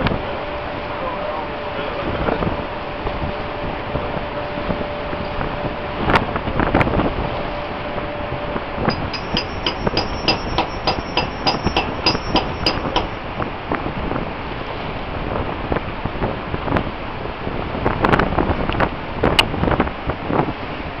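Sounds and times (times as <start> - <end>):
ship noise: 0.0 - 21.0
steady wind: 0.0 - 21.0
sharp ringing metallic taps: 8.9 - 13.2.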